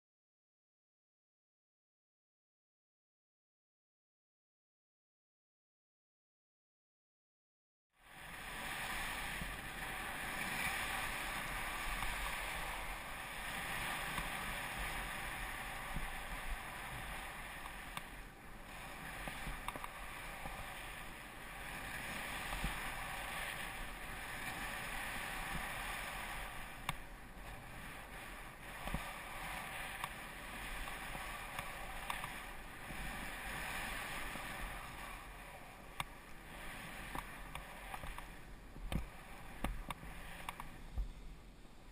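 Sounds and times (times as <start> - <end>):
skis sliding through snow: 8.0 - 41.2
wind on microphone: 8.1 - 41.9
faint clicks: 17.6 - 18.2, 30.8 - 32.4, 37.1 - 41.1.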